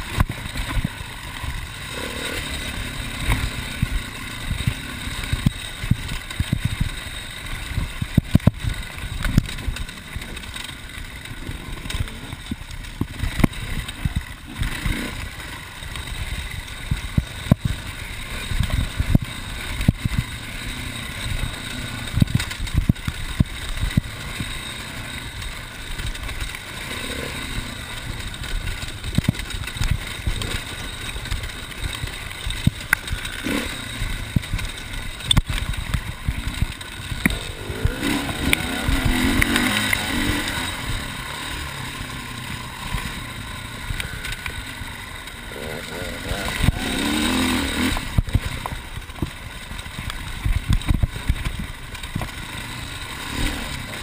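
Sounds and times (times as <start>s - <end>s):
knocks and thumps from rough ground: 0.0s - 54.0s
motorcycle engine running: 0.0s - 54.0s.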